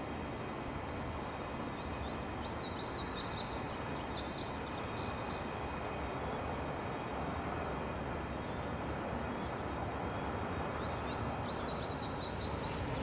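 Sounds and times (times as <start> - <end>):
distant freight train: 0.0 - 13.0
small bird chirping: 1.7 - 5.5, 10.6 - 13.0.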